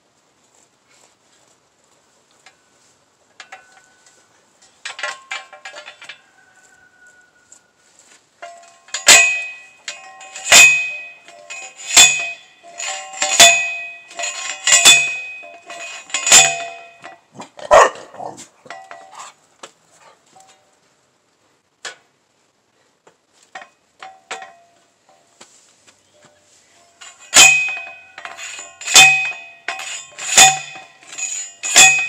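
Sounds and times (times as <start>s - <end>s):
light metallic rattle: 3.3s - 7.5s, 8.4s - 17.4s, 18.6s - 19.4s, 23.4s - 25.3s, 26.0s - 32.0s
post driver striking metal: 8.4s - 17.3s, 23.6s - 24.7s, 27.0s - 32.0s.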